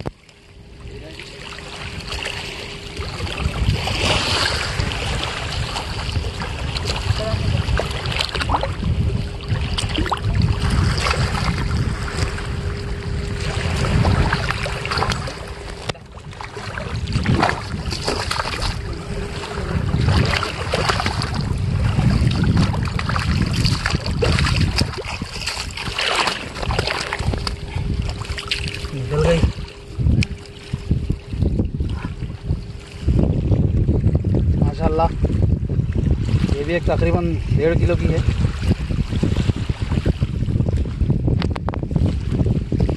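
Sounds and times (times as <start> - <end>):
wind buffeting microphone: 0.0 - 42.9
water sloshing around legs: 1.0 - 34.1
fish thrashing and splashing: 9.4 - 31.0.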